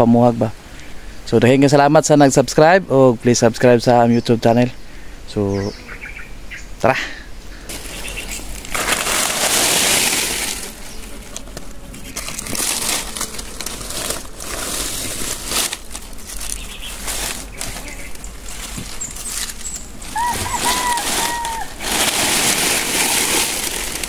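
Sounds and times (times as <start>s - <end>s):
dry leaves crackling and rustling: 7.7s - 24.0s.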